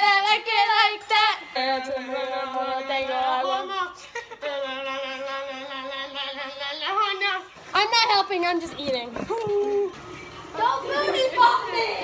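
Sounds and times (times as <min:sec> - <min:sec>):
girls singing without words: 0:00.0 - 0:07.5.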